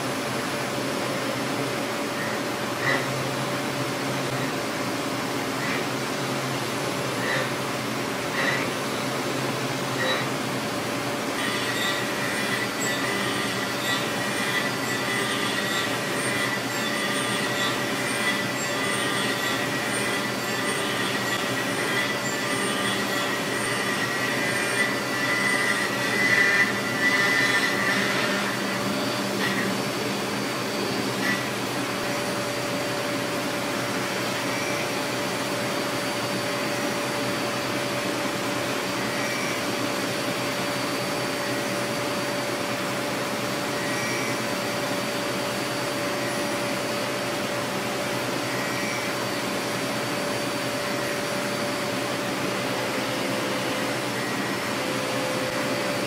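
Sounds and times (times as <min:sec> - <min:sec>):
milling machine cutting metal: 0:01.0 - 0:56.0
high steady whine: 0:44.2 - 0:56.0.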